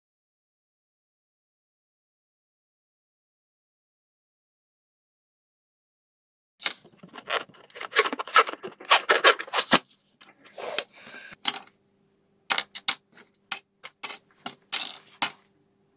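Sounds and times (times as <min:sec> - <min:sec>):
air hissing from balloon: 0:10.5 - 0:11.4.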